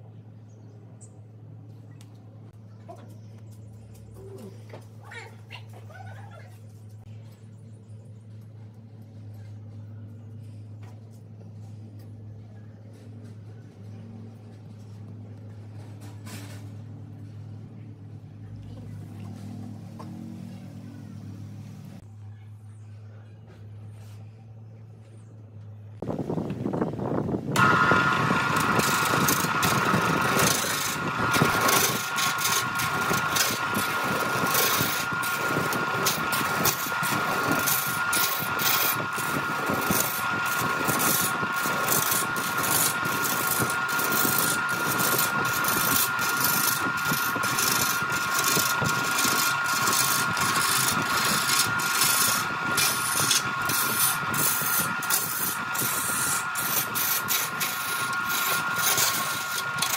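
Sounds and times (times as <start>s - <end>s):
wood lathe motor whine: 26.1s - 59.9s.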